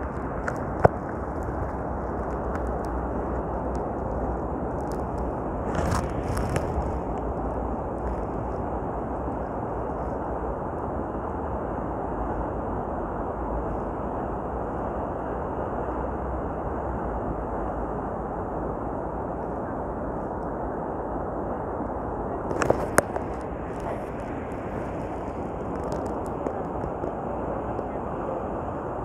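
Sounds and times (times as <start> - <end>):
sea waves breaking: 0.0 - 9.4
wind rumbling on microphone: 0.0 - 29.0.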